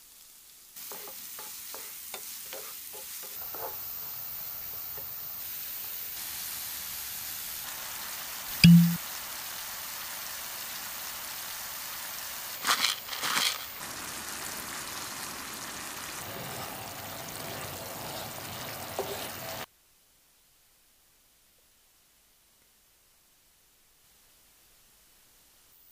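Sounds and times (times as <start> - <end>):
onions sizzling in a pan: 0.0 - 19.7.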